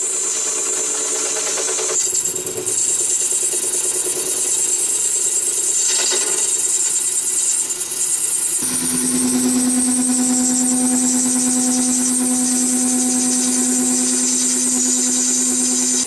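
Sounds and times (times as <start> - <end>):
wood lathe hum: 8.6 - 16.0.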